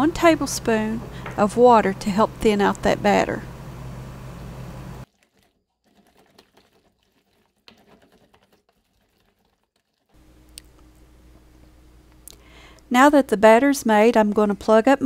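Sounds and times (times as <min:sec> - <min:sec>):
low background hum: 0:00.0 - 0:05.1, 0:10.2 - 0:15.0
whisk stirring thick batter: 0:05.0 - 0:10.2.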